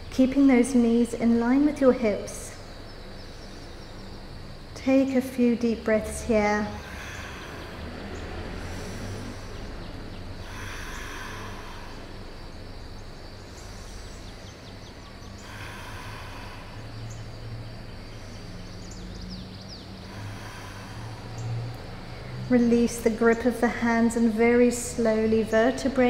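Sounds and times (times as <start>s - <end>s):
low room hum: 0.0s - 26.0s
slow deep breathing: 2.5s - 4.6s, 6.6s - 22.5s.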